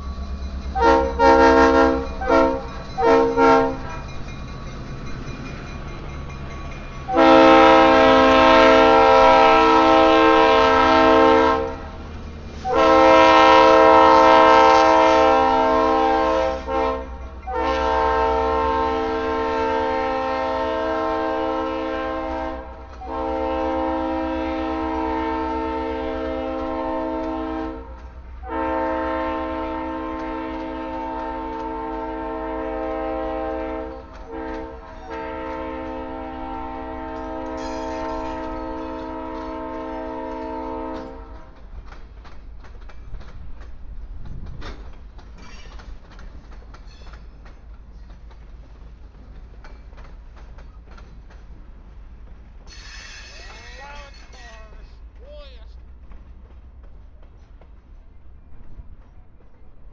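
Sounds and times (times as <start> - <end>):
locomotive air horn: 0.8 - 4.0, 7.1 - 12.0, 12.6 - 41.6.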